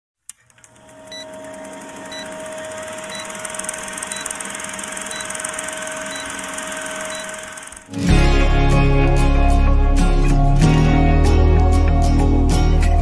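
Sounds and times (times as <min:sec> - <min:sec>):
film projector clattering: 0:00.4 - 0:08.0
short high beeps: 0:05.0 - 0:07.6.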